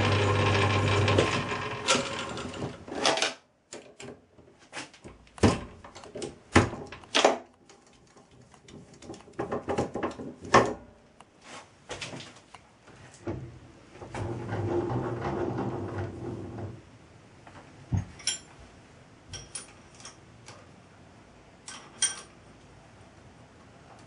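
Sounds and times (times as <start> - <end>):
lathe motor running down: 0.0 - 2.6.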